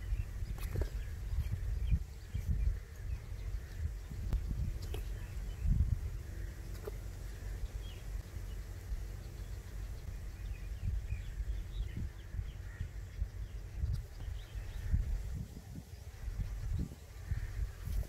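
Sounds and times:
low rumble on microphone: 0.0 - 18.0
small birds chirping: 0.0 - 18.0.

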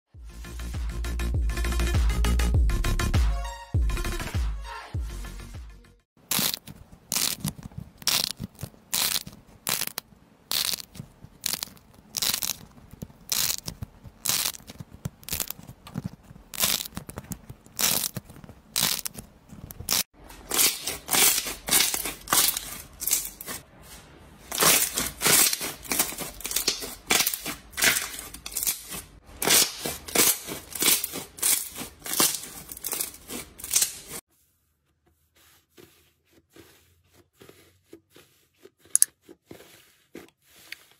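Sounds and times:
slime squishing: 6.2 - 23.6, 35.0 - 40.9
stress toy squishing: 6.2 - 23.6.

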